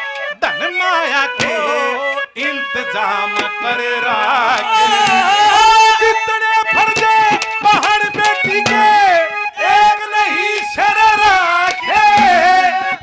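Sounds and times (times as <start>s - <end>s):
live instrumental accompaniment: 0.0s - 13.0s
man singing into a microphone: 0.0s - 13.0s
drum strokes: 1.4s - 1.9s, 4.5s - 5.9s, 6.7s - 9.2s, 10.6s - 12.8s.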